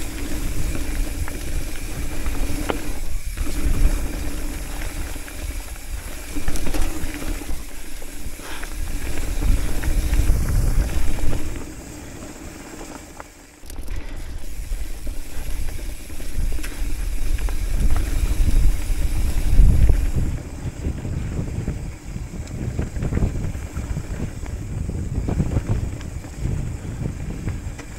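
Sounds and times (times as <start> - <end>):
wind buffeting microphone: 0.0 - 12.4, 13.7 - 27.9
bike frame rattling clicks: 0.0 - 20.3
bike tyres rumbling over gravel: 0.0 - 27.9.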